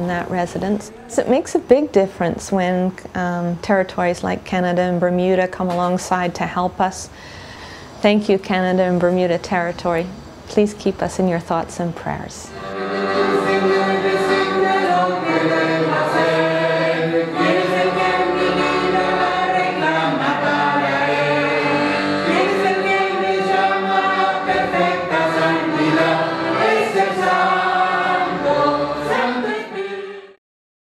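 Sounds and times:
choir singing: 0:12.5 - 0:30.4
musical accompaniment: 0:12.5 - 0:30.4.

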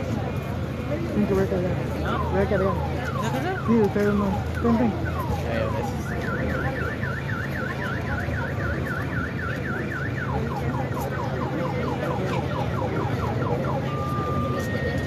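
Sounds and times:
car alarm warbling and chirping: 0:02.1 - 0:12.1.

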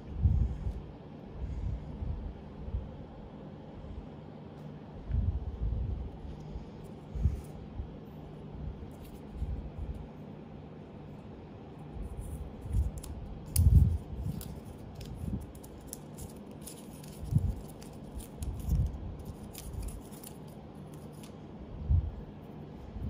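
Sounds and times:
cable wrap clicks and crinkles: 0:12.2 - 0:21.4.

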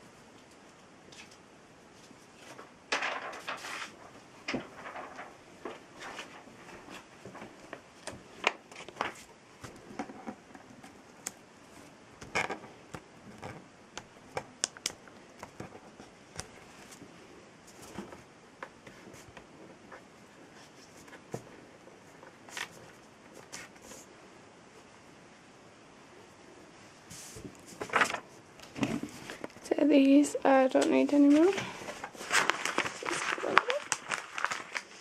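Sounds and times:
paper rustling: 0:01.2 - 0:10.8, 0:18.8 - 0:24.1, 0:27.2 - 0:29.6, 0:30.7 - 0:35.0.

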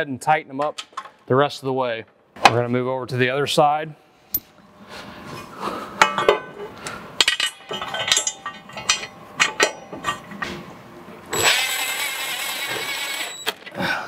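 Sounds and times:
metallic clinks and knocks: 0:07.2 - 0:10.3.

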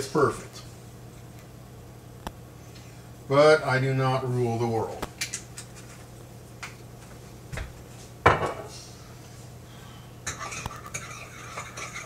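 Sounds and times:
utensil whisking in a bowl: 0:10.3 - 0:12.0.

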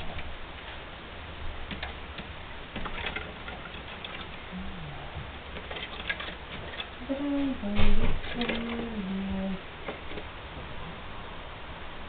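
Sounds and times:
bird clicking and scratching in cage: 0:01.7 - 0:04.4, 0:05.5 - 0:07.0.

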